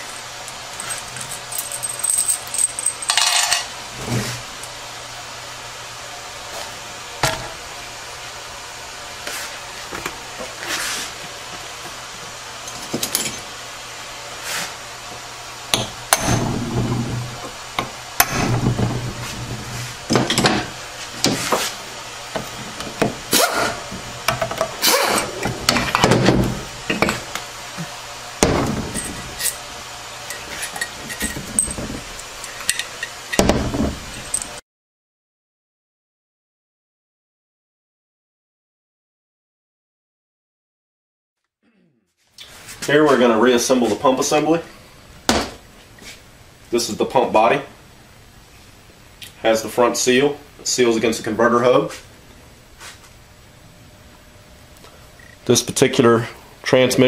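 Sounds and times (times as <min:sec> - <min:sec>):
metal parts clinking and knocking: 0:00.1 - 0:03.7, 0:28.6 - 0:29.6, 0:30.3 - 0:34.6.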